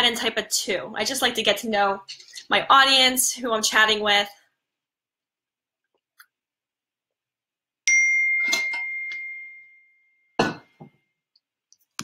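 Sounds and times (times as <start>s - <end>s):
bright ding: 7.9s - 10.7s.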